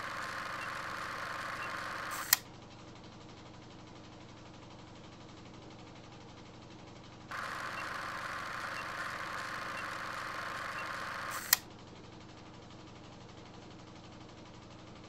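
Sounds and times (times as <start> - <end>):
sharp click: 1.6 - 2.4, 8.8 - 11.6.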